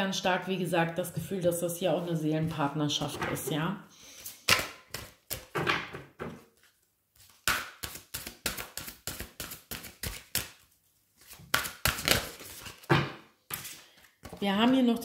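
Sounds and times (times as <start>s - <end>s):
cards being shuffled: 6.6s - 10.6s, 11.2s - 12.9s.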